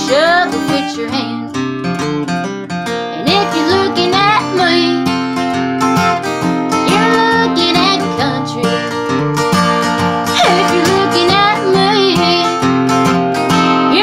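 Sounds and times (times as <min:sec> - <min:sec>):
woman singing: 0:00.0 - 0:01.7, 0:03.1 - 0:05.4, 0:06.7 - 0:09.3, 0:10.3 - 0:12.8, 0:13.7 - 0:14.0
acoustic guitar strumming: 0:00.0 - 0:14.0.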